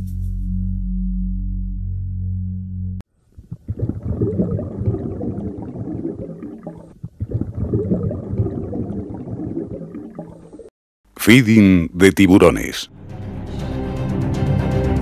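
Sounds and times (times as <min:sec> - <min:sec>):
underwater bubbling rumble: 0:03.3 - 0:10.7.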